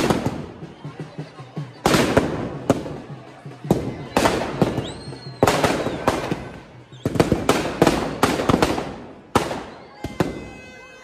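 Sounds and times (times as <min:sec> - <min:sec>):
firecrackers banging: 0:00.0 - 0:10.8
firework whistle: 0:04.1 - 0:08.1, 0:09.4 - 0:11.0.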